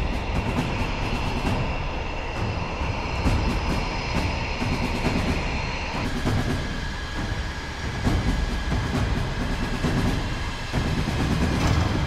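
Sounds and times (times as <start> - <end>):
jet engine whining and rumbling: 0.0 - 12.0.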